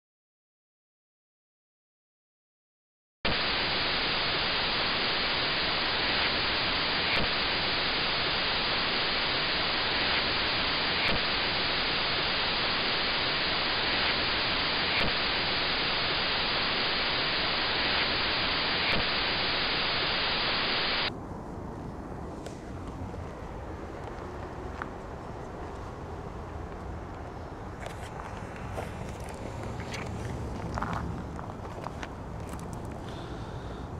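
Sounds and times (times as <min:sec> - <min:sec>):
television static hiss: 0:03.3 - 0:21.1
quiet outdoor ambience: 0:03.3 - 0:33.9.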